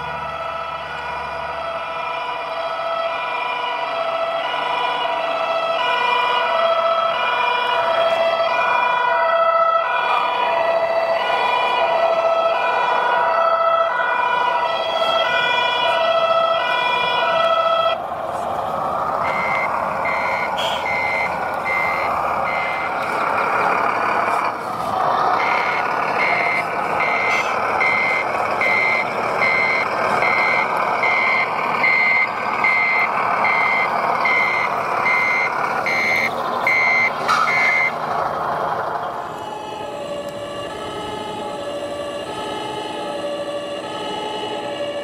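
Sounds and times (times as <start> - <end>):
reversing beeper: 19.1 - 23.1, 25.3 - 38.0.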